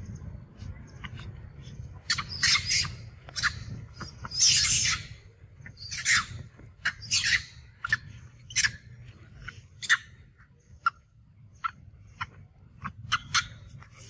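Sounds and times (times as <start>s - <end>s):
monkey screaming: 2.0s - 8.9s, 9.8s - 10.2s, 13.0s - 13.9s.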